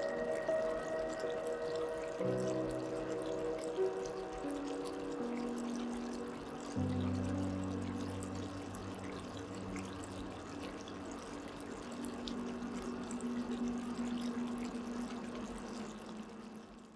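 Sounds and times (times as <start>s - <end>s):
soft music of held chords: 0.0s - 16.9s
steady watery hiss: 0.0s - 16.9s.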